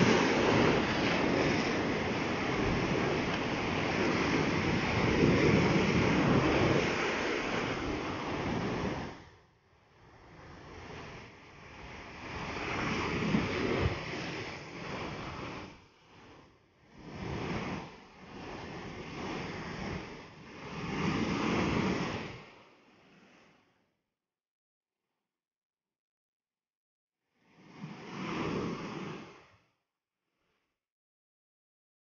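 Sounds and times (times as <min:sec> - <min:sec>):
ocean surf breaking on rocks: 0:00.0 - 0:09.2.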